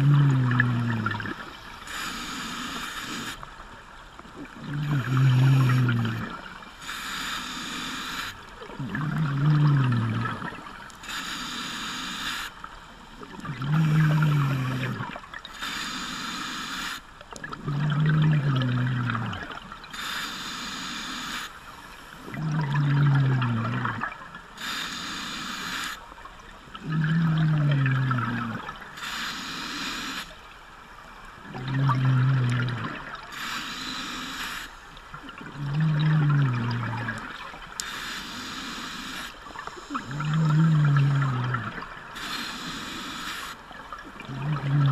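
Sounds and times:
exhaled bubbles burbling: 0.0 - 1.6, 4.2 - 6.7, 8.4 - 10.8, 13.2 - 15.5, 17.3 - 19.9, 22.2 - 24.4, 26.3 - 29.0, 31.4 - 33.3, 35.1 - 37.8, 39.5 - 42.2, 43.7 - 44.9
diver breathing through regulator: 0.0 - 3.4, 4.8 - 10.4, 24.6 - 26.0, 26.8 - 30.4, 31.7 - 34.9, 37.8 - 43.6.

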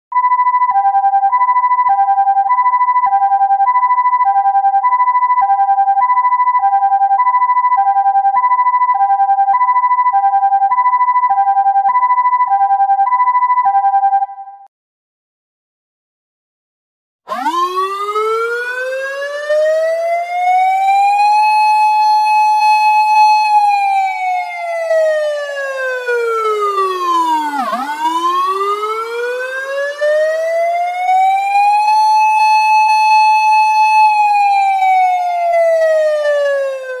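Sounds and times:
ambulance siren wailing: 17.3 - 37.0.

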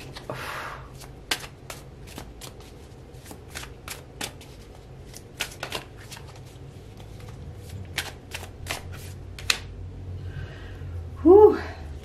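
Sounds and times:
cards being shuffled: 0.0 - 0.3, 0.9 - 9.7.

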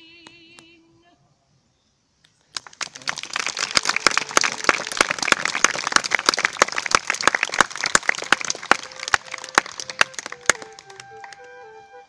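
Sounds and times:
loud claps close by: 2.5 - 11.6
audience applauding: 2.5 - 11.8.

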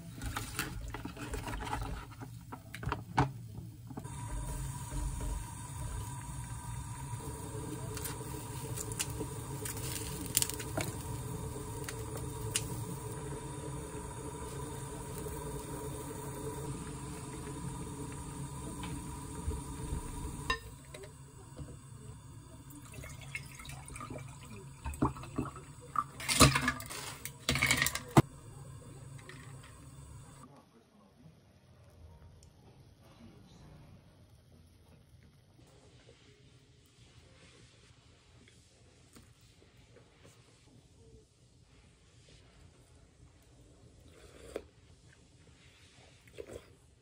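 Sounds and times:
soup bubbling in a pot: 4.0 - 30.5.

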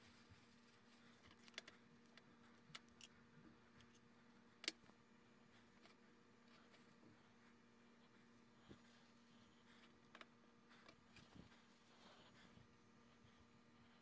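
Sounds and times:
faint steady hum: 0.0 - 14.0
light clicks and taps: 1.2 - 5.0.

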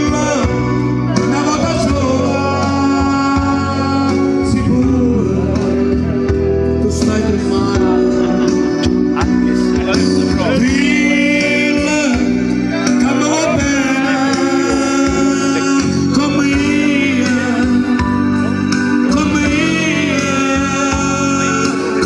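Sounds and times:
instrumental accompaniment: 0.0 - 22.0
man singing: 0.0 - 22.0.

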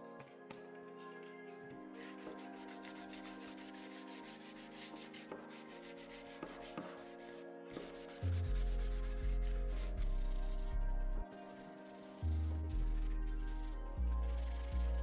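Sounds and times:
background music with heavy bass: 6.7 - 15.0.

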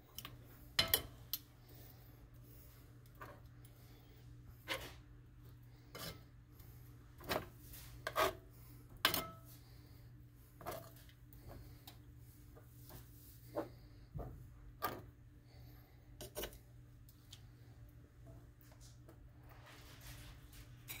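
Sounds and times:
tongs clicking and scraping pan: 0.0 - 1.5, 3.0 - 3.8, 5.8 - 9.6, 10.6 - 12.1, 16.2 - 17.4
steady low hum: 0.0 - 21.0.

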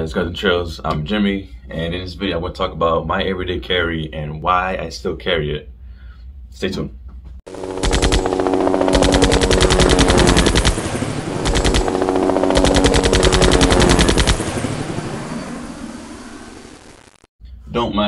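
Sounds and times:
machine-gun fire: 7.5 - 15.1
steady low drone: 7.5 - 17.1.

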